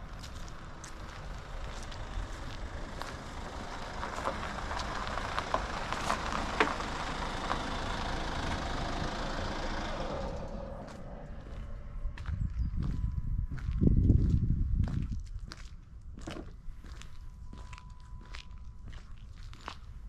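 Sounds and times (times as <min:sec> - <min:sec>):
walking footsteps: 0:00.0 - 0:07.7, 0:10.8 - 0:20.0
vehicle passing by: 0:00.0 - 0:12.5.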